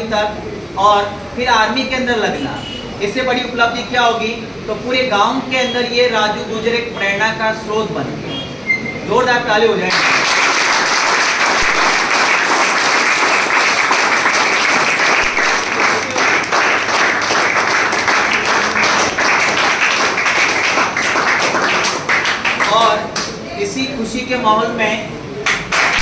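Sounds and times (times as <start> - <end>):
crowd applauding: 9.9 - 23.4, 25.4 - 26.0.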